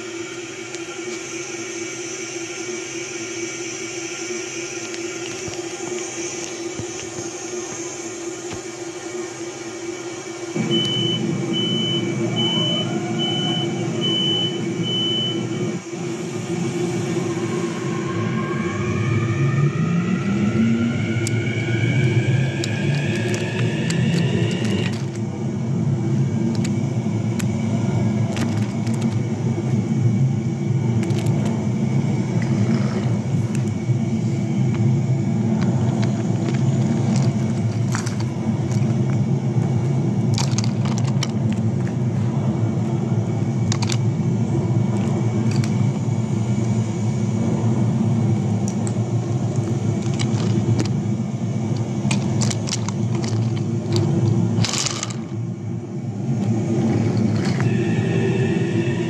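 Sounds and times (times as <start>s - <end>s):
toy trains rolling on wooden track: 21.2s - 25.2s, 28.2s - 29.2s, 35.5s - 42.4s, 43.3s - 44.1s, 44.9s - 46.0s, 48.6s - 51.0s, 51.7s - 55.4s, 56.4s - 57.8s.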